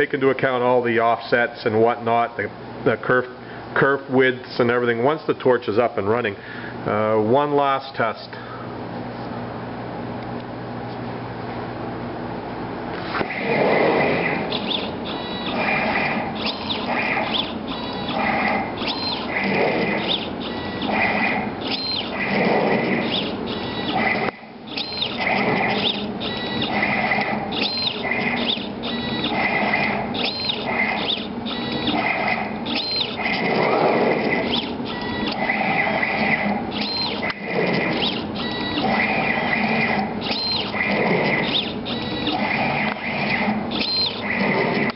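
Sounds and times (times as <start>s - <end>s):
drive motors whining: 13.0s - 44.9s.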